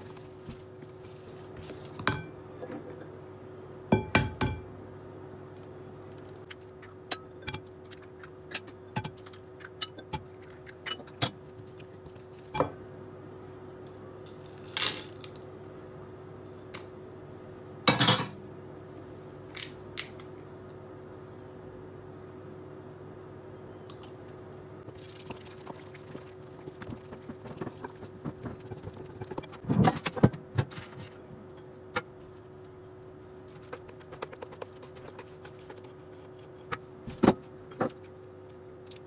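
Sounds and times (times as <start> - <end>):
steady low hum: 0.0 - 39.0.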